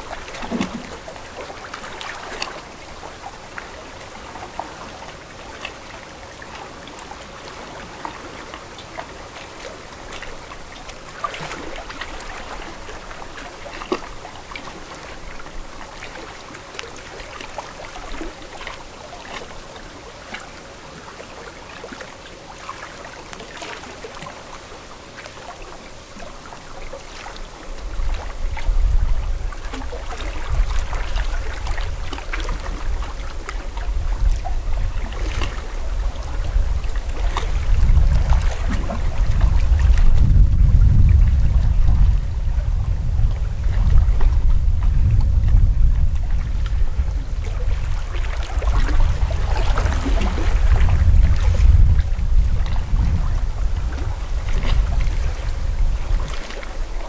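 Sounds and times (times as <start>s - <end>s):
lake water lapping: 0.0s - 57.0s
low rumble: 37.7s - 56.1s.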